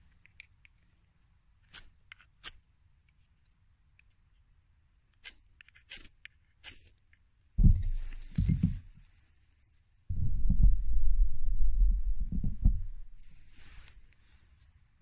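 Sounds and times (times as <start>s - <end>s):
loud low rumble: 7.6s - 8.0s, 10.1s - 13.2s.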